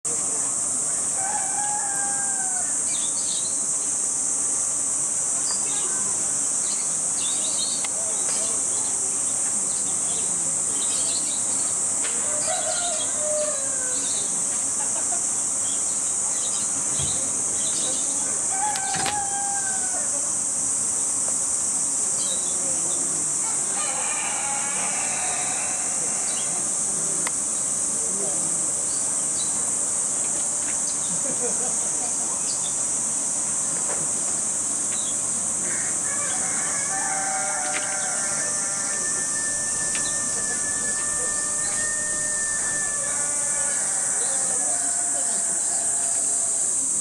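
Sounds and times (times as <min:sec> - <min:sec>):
cicadas droning: 0:00.0 - 0:47.0
rooster crowing: 0:01.1 - 0:02.9, 0:12.2 - 0:14.1, 0:18.5 - 0:20.2, 0:23.4 - 0:26.7, 0:35.6 - 0:46.8.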